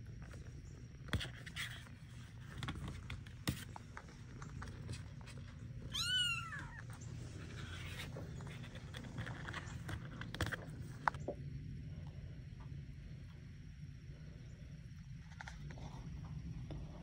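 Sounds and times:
kitten mewing: 5.9 - 6.9.

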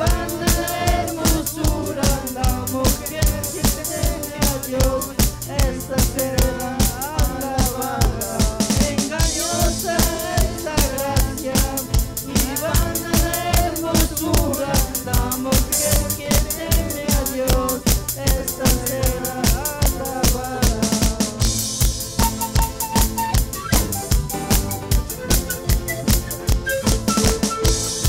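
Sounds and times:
bass drum and snare beat: 0.0 - 28.0
live band playing: 0.0 - 28.0.

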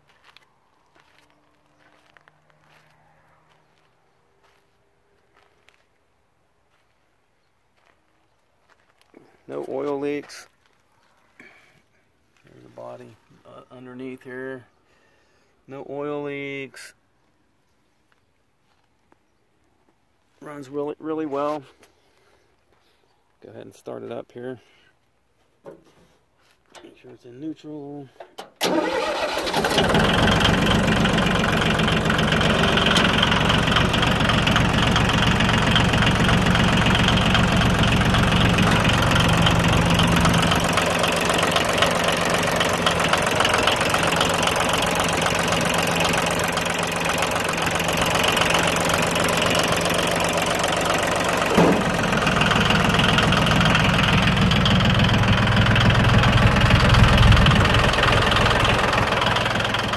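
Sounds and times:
diesel engine idling: 28.6 - 59.9.

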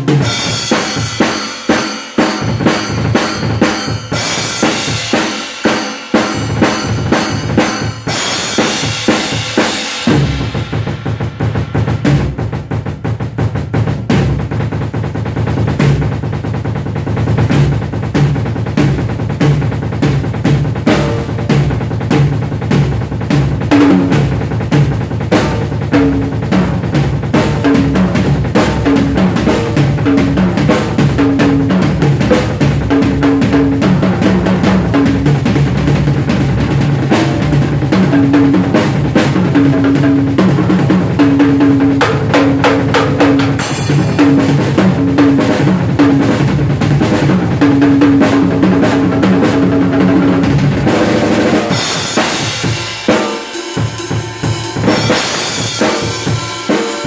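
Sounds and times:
cymbal crashes: 0.0 - 12.4, 43.6 - 44.2, 51.7 - 57.0
drum kit groove: 0.0 - 57.0.

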